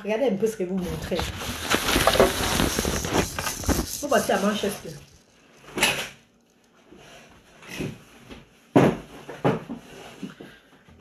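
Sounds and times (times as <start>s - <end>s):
knocks and thumps of furniture: 7.7s - 10.5s.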